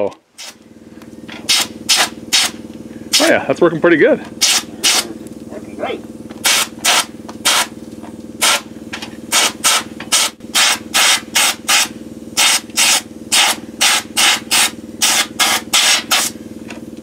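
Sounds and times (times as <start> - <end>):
steady hum: 0.0 - 17.0
sandblaster hissing bursts: 0.3 - 0.6, 1.5 - 3.4, 4.4 - 5.1, 6.4 - 16.6.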